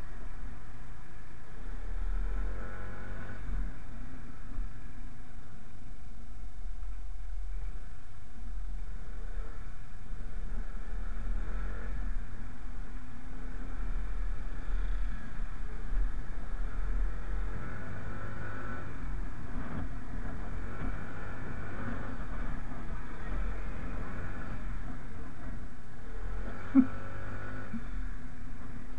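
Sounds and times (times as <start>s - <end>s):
motorcycle engine rumble: 0.0s - 28.9s.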